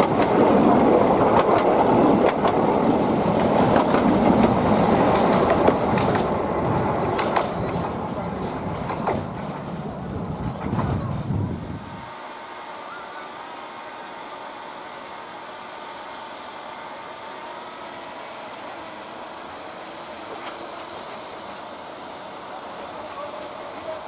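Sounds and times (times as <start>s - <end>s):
train rolling noise: 0.0s - 24.0s
low rumble: 7.6s - 12.0s
steam hissing: 11.6s - 24.0s.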